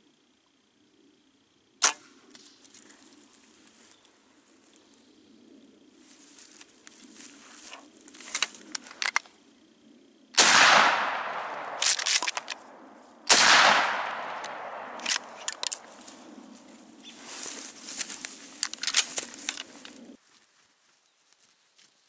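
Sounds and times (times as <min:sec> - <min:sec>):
shotgun shots echoing: 0:01.8 - 0:02.1, 0:10.4 - 0:16.0
gun handling clicks: 0:07.7 - 0:09.3, 0:10.4 - 0:16.1, 0:18.0 - 0:20.0
shotgun pump clicks: 0:10.4 - 0:12.7, 0:13.3 - 0:16.0.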